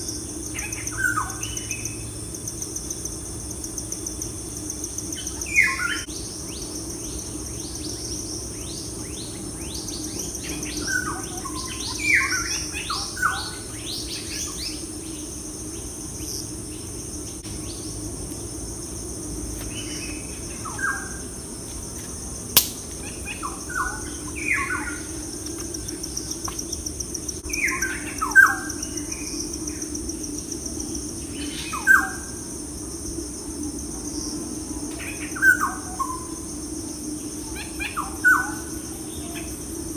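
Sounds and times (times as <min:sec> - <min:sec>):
high insect drone: 0:00.0 - 0:39.9
sharp click: 0:22.6 - 0:23.0.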